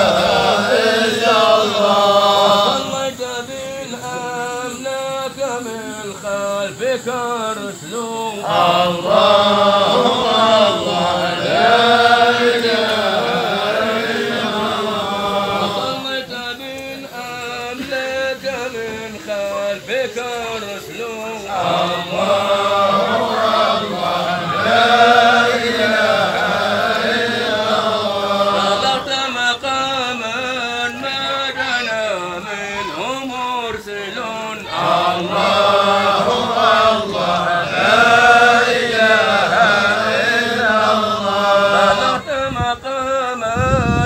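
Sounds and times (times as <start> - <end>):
men chanting: 0.0 - 44.0.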